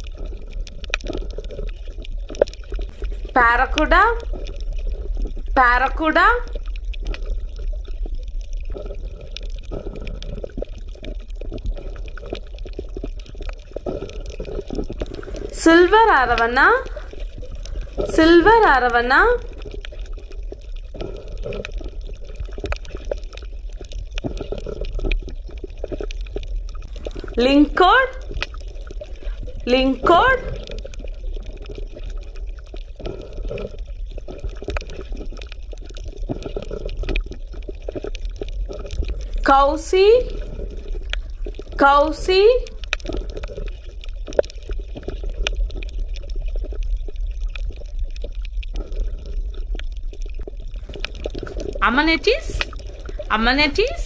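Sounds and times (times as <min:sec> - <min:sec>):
crackles and clicks: 0:00.0 - 0:54.0
underwater bubbling: 0:00.0 - 0:54.0
steady low hum: 0:14.9 - 0:19.7.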